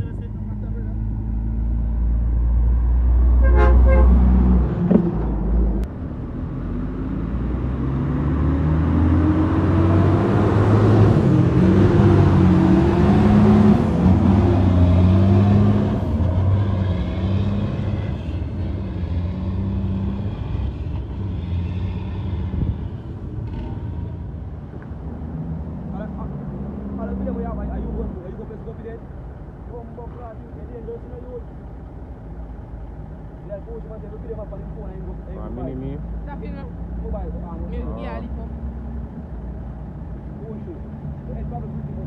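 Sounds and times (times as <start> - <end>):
vehicle horn toot: 3.4 - 4.2.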